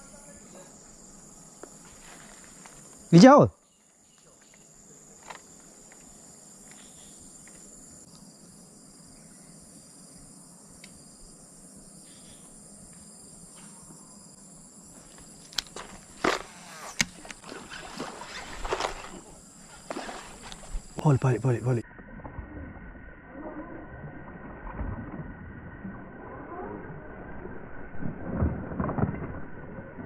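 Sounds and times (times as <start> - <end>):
high-pitched insect chorus: 0.0 - 21.8
rustling strokes: 15.0 - 21.0.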